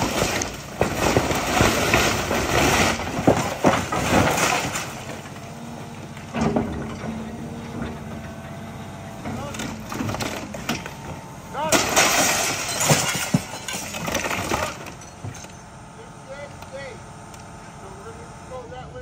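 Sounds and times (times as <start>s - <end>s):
timber cracking and splintering: 0.0s - 5.4s, 11.6s - 15.0s
debris falling: 0.0s - 5.5s, 9.3s - 15.6s
diesel engine running: 0.0s - 19.0s.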